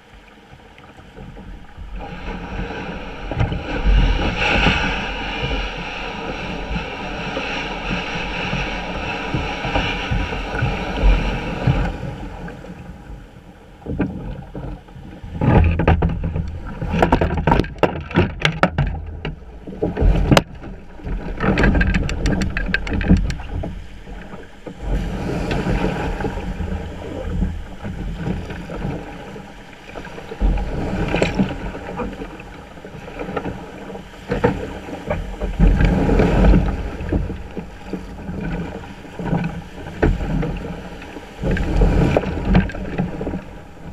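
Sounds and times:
water splashing against kayak hull: 0.0s - 43.9s
surf breaking: 0.9s - 43.9s
sharp splashes and knocks: 13.8s - 43.9s.

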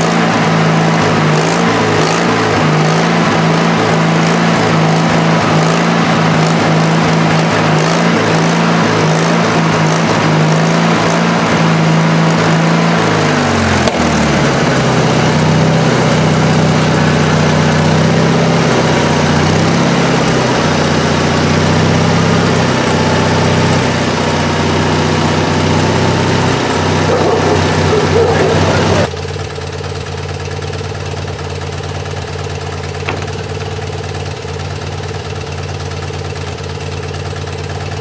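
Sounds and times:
sawmill engine running under load: 0.0s - 38.0s
band saw ripping log: 9.6s - 17.5s, 33.0s - 33.8s.

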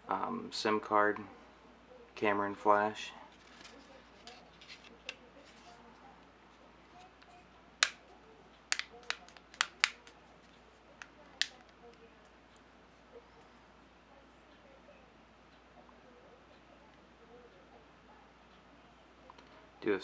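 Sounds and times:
plastic phone cover clicks: 8.7s - 10.1s.

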